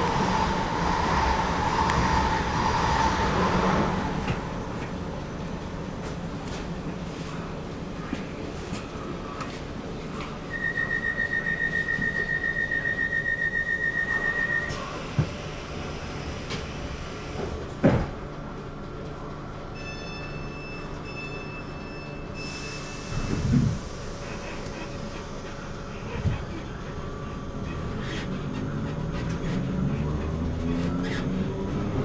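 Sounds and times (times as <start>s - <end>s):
electric train hum: 0.0s - 32.0s
station whistle blast: 10.5s - 14.9s.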